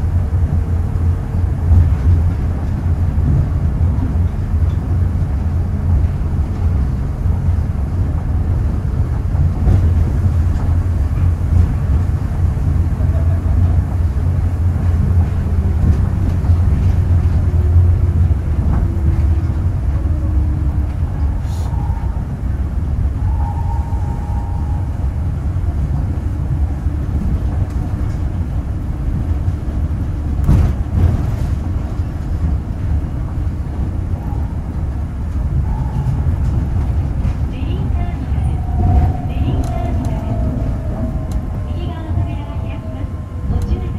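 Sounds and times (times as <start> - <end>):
train low rumble: 0.0 - 43.9.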